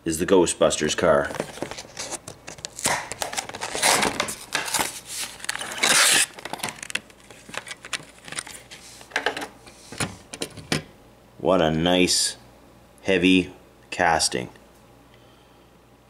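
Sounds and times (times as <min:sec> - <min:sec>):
plastic packaging crinkling: 0:01.2 - 0:09.2.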